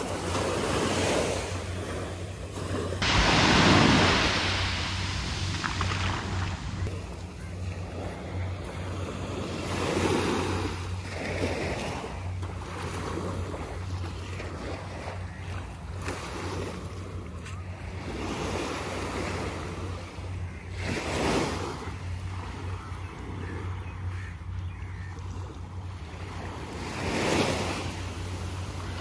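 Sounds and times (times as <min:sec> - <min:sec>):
steady low hum: 0:00.0 - 0:18.2
small waves washing on shore: 0:00.0 - 0:29.0.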